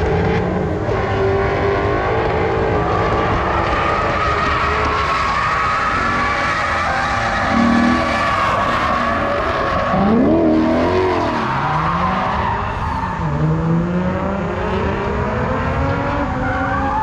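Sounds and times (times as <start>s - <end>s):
car engine revving: 0.0s - 17.0s
tire skidding: 1.8s - 13.6s.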